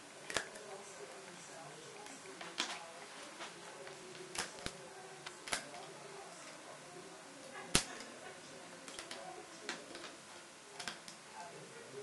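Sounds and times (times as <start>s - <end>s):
rubber bands clicking off loom: 5.4s - 5.8s.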